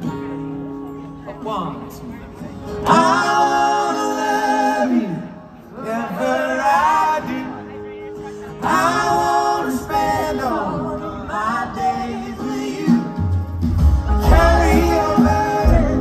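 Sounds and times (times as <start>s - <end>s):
country band playing: 0.0s - 16.0s
people singing long notes: 2.8s - 7.6s, 8.6s - 13.4s, 14.1s - 16.0s.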